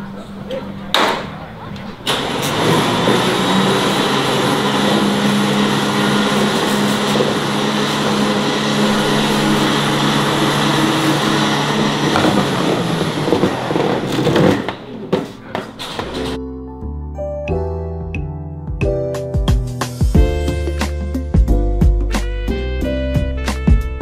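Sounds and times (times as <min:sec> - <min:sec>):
motor running steadily: 0:02.1 - 0:14.6.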